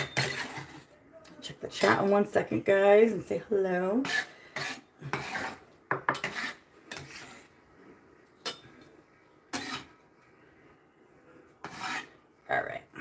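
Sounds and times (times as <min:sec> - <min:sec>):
knife scraping glass bowl: 0:00.0 - 0:00.8, 0:04.0 - 0:07.5, 0:09.5 - 0:10.0, 0:11.6 - 0:12.2.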